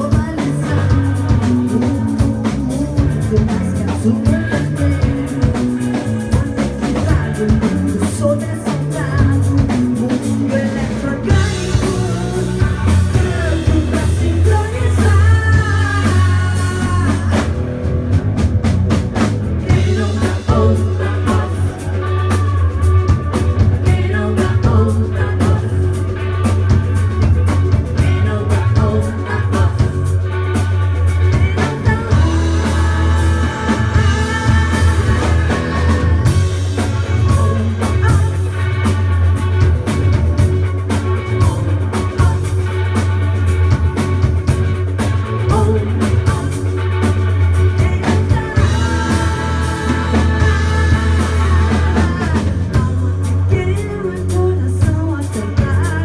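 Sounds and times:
voices singing: 0.0 - 17.6, 19.5 - 27.0, 27.8 - 39.3, 45.3 - 54.3
bass guitar line: 0.0 - 56.0
drum kit: 0.0 - 56.0
electric guitars: 0.0 - 56.0.

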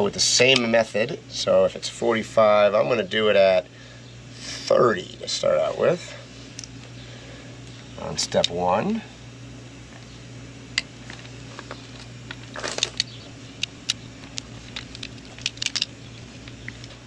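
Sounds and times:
low hum: 0.0 - 17.0
torque wrench clicking: 12.8 - 17.0.

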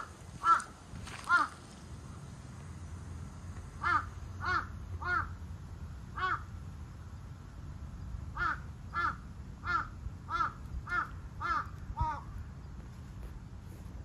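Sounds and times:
crow cawing: 0.0 - 1.6, 3.8 - 5.4, 6.2 - 6.5, 8.4 - 12.3.

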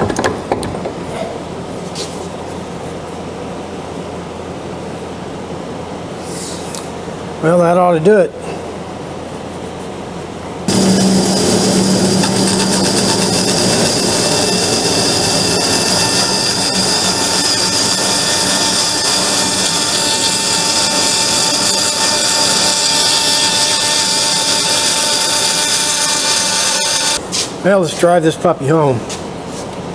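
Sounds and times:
band saw cutting wood: 10.7 - 27.2.

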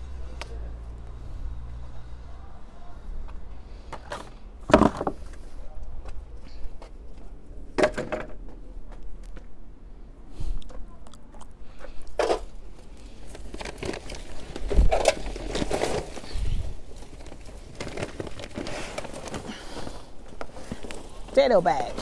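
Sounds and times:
plant stems rustling and crunching: 12.3 - 22.0.

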